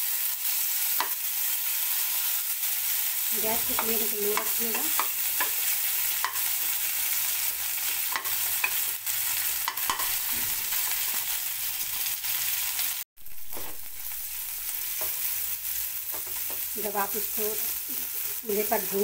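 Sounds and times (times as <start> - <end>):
onion and tomato sizzling in a pan: 0.0 - 19.0
spatulas scraping and tapping a pan: 3.6 - 6.5, 7.9 - 8.9, 9.6 - 11.3.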